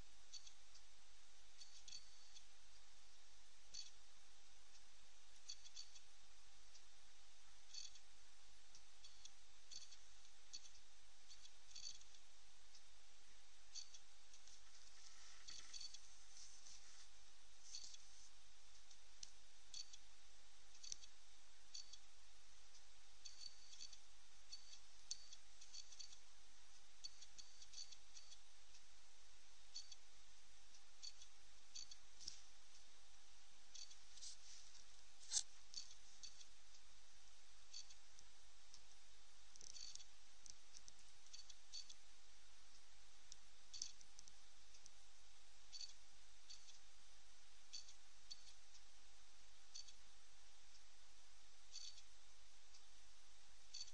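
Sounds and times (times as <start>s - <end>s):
faint steady hum: 0.0s - 53.9s.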